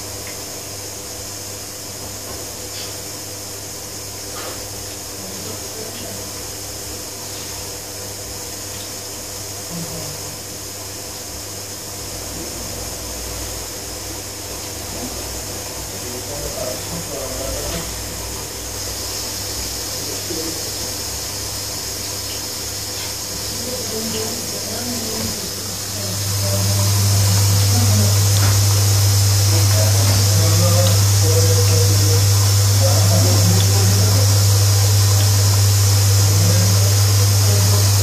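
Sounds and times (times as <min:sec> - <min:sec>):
washing machine motor hum: 0:00.0 - 0:38.0
water swishing in drum: 0:17.7 - 0:38.0.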